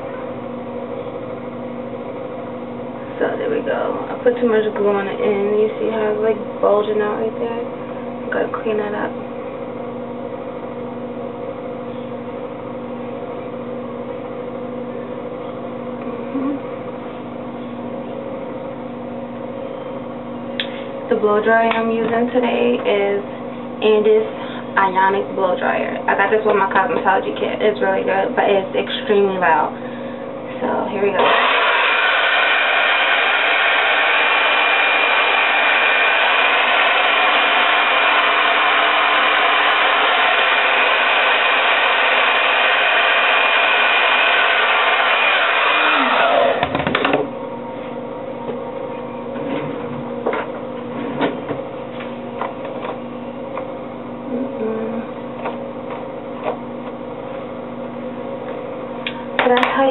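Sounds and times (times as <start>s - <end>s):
electrical buzzing hum: 0.0s - 59.9s
hair dryer running: 30.6s - 47.3s.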